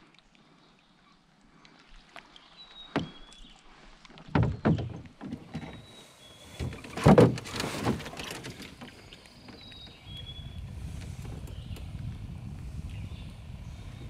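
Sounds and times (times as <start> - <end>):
knocks and thumps against canoe: 2.8 - 3.5, 4.1 - 12.8.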